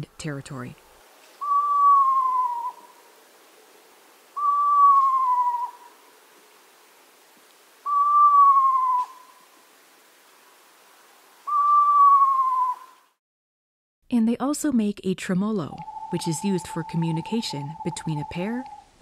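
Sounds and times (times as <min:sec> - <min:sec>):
owl whinny call: 0:01.4 - 0:03.1, 0:04.4 - 0:06.0, 0:07.8 - 0:09.5, 0:11.4 - 0:13.0.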